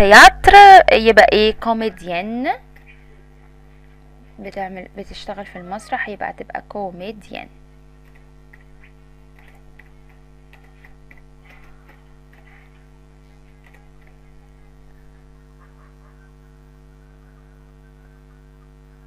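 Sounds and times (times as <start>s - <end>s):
mains hum: 0.0s - 19.0s
keyboard keys clicking: 9.3s - 12.6s, 13.6s - 14.2s.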